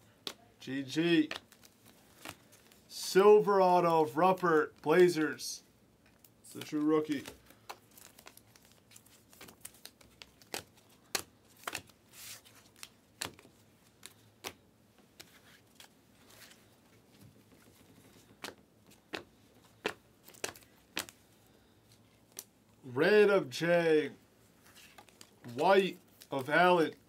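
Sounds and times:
trading cards clicking and flicking: 18.2s - 21.2s.

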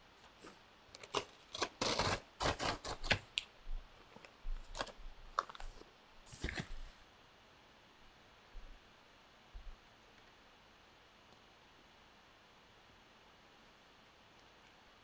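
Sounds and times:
paper crinkling: 4.2s - 7.0s.

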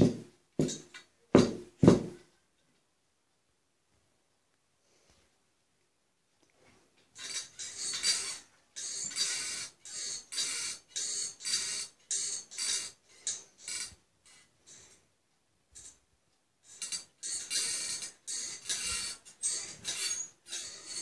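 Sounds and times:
metal baby rocker squeaking and rattling: 7.2s - 15.0s, 16.6s - 21.0s.

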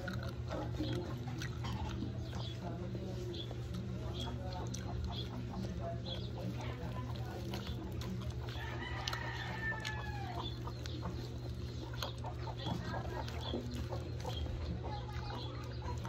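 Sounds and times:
chickens clucking: 0.0s - 16.0s
steady low hum: 0.0s - 16.0s.

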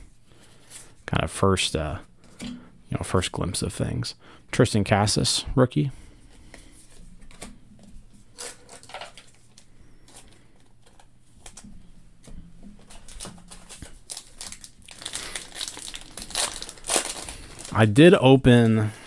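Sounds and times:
cards rustling and clicking: 6.5s - 17.8s
card pack wrapper tearing: 8.4s - 9.4s, 13.0s - 17.9s.

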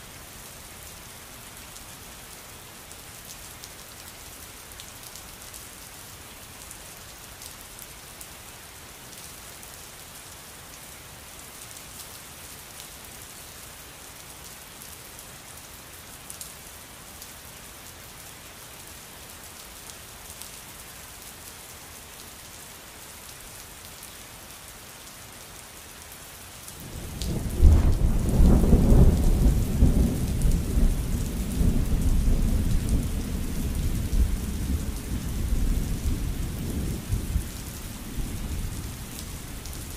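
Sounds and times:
steady rainfall: 0.0s - 39.9s
thunder rumbling: 27.2s - 39.9s.

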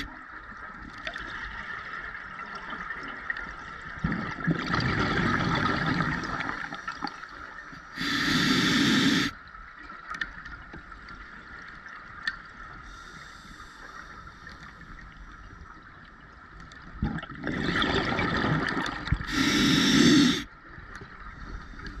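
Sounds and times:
exhaled bubbles rushing: 4.0s - 6.6s, 17.0s - 20.4s
hissing regulator inhalation: 8.0s - 9.4s, 19.3s - 20.5s.

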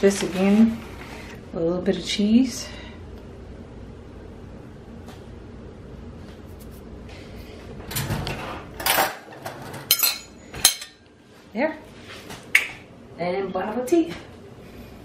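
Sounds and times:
low steady hum: 0.0s - 15.0s
dishes scraping and clattering: 7.9s - 11.0s.

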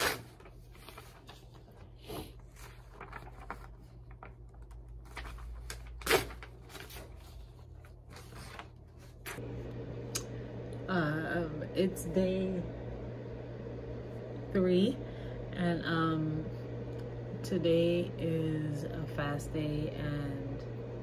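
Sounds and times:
paper rustling: 0.0s - 9.4s
low steady hum: 0.0s - 21.0s.

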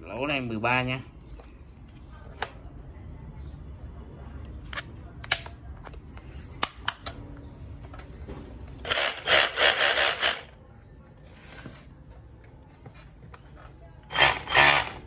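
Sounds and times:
loud rasping noise: 14.1s - 15.0s.

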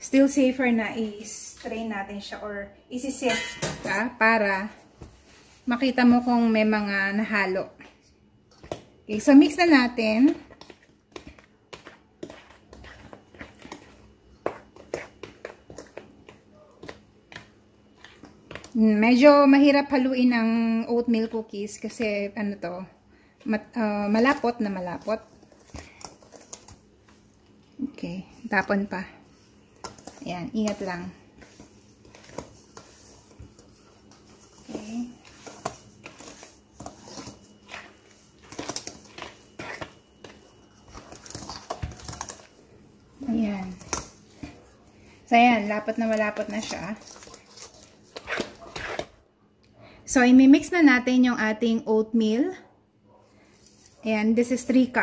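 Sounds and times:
dough stirred in steel bowl: 3.0s - 49.2s
whisk scraping metal bowl: 9.2s - 16.1s, 29.3s - 42.6s.

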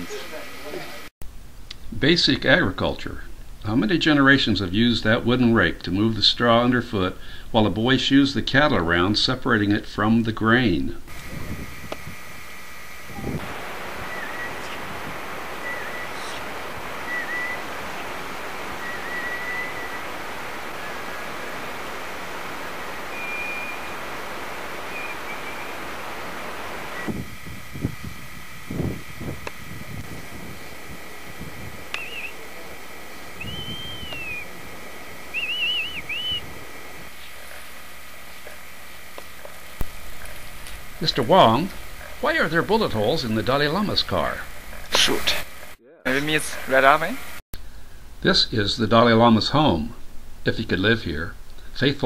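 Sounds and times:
wind noise hissing: 11.1s - 38.4s
faint high whistle: 14.0s - 14.9s, 15.5s - 17.7s, 18.7s - 21.4s, 23.0s - 23.9s, 31.9s - 32.4s, 33.4s - 34.5s, 35.3s - 36.5s
person whistling warbled notes: 33.4s - 34.5s, 35.3s - 36.5s.

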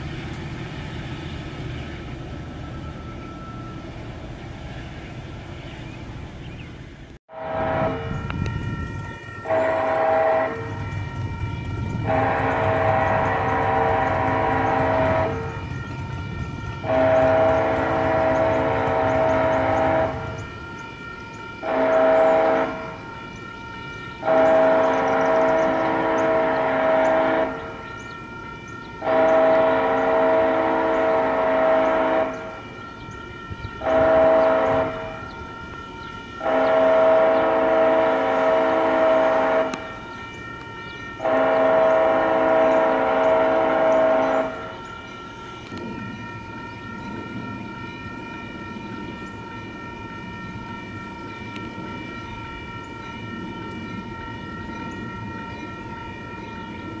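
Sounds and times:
crossing warning bell ringing: 1.4s - 5.5s, 7.6s - 57.0s
train air horn blasts: 7.3s - 57.0s.

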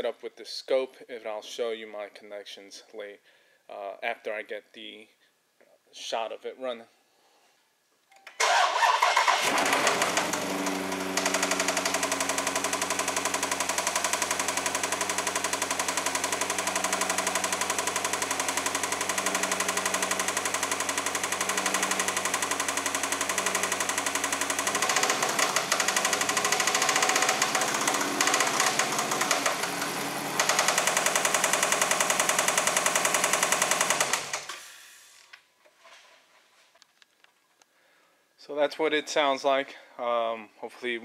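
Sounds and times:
engine running with rapid knock: 9.3s - 34.5s.

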